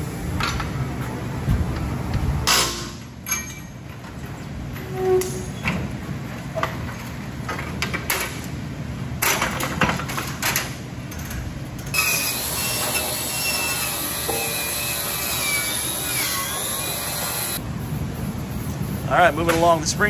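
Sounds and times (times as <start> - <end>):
angle grinder on steel: 12.0 - 17.6.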